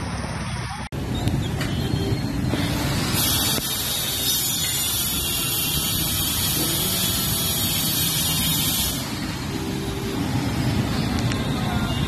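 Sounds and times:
heavy rain hissing: 0:02.8 - 0:09.6.

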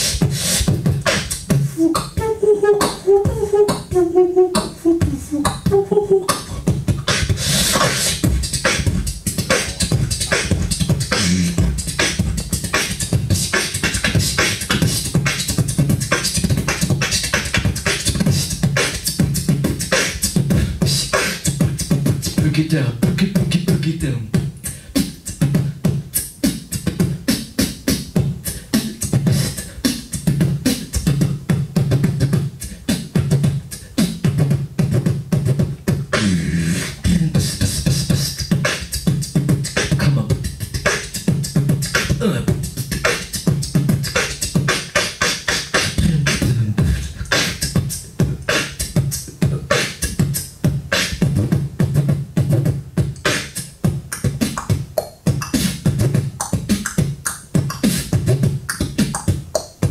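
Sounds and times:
person beatboxing into microphone: 0:00.0 - 0:59.9
gliding pitched vocal sounds: 0:01.8 - 0:06.7.

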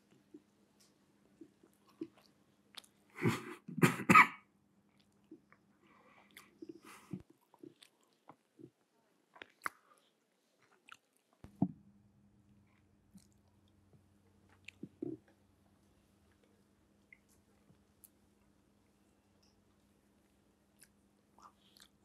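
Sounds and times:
people eating and chewing: 0:00.0 - 0:03.6, 0:04.9 - 0:11.5, 0:13.1 - 0:22.0
faint steady hum: 0:00.0 - 0:22.0
person coughing: 0:03.2 - 0:04.4.

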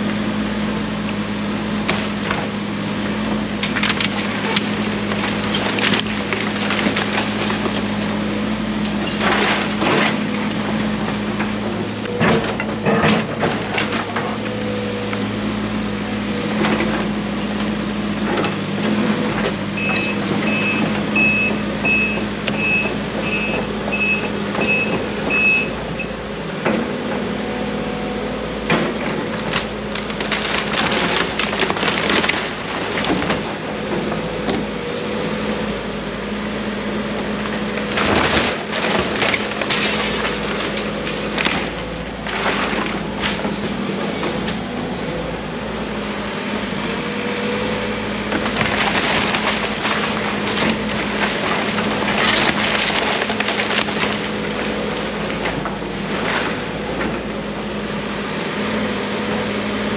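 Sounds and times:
excavator diesel engine running: 0:00.0 - 0:59.9
splintering lumber cracking and crashing: 0:03.5 - 0:14.7, 0:28.6 - 0:34.7, 0:37.4 - 0:44.7, 0:48.2 - 0:57.3
falling debris: 0:03.6 - 0:14.5, 0:28.8 - 0:33.9, 0:37.8 - 0:44.6, 0:48.2 - 0:56.8
excavator travel alarm beeping: 0:19.8 - 0:26.2.

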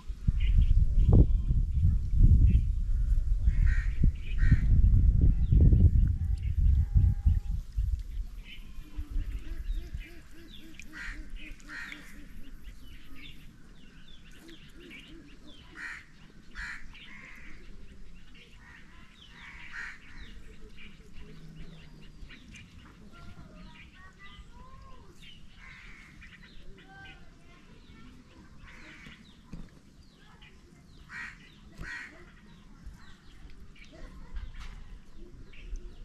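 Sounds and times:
birds calling: 0:02.5 - 0:36.0.

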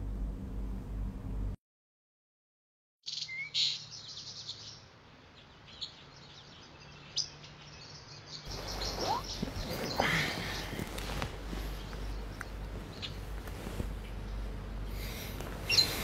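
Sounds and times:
faint low hum: 0:00.0 - 0:01.6, 0:08.5 - 0:16.0
birds chirping: 0:03.0 - 0:16.0.

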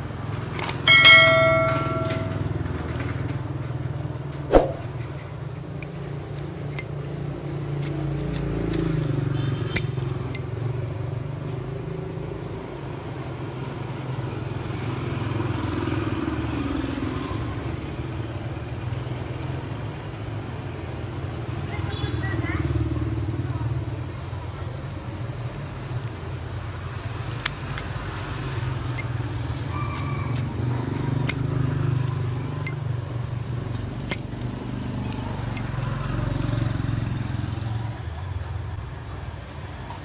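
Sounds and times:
road traffic rumble: 0:00.0 - 0:40.0
metallic ding: 0:00.7 - 0:02.7, 0:06.8 - 0:07.1, 0:29.0 - 0:29.2, 0:32.7 - 0:33.0.

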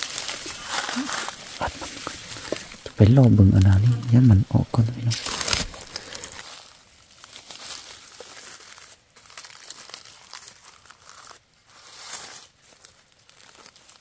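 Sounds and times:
dry leaves crackling and rustling: 0:00.0 - 0:14.0.

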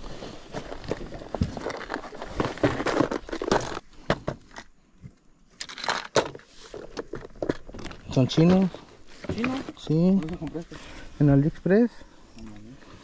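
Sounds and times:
rummaging in plastic tackle box: 0:00.0 - 0:03.9, 0:05.6 - 0:10.6.

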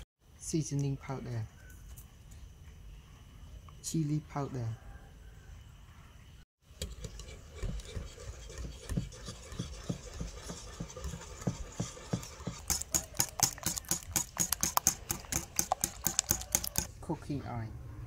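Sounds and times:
wire whisk beating eggs in glass bowl: 0:06.8 - 0:16.9.

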